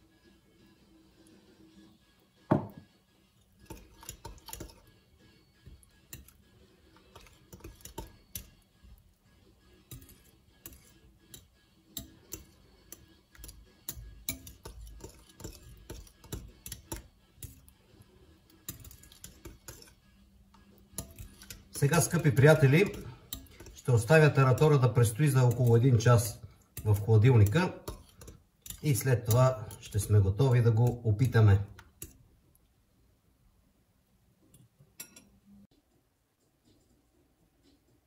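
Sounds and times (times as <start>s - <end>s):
glass bowl set down knock: 2.5s - 2.8s
spoon stirring in glass bowl: 3.3s - 32.3s, 34.5s - 35.4s.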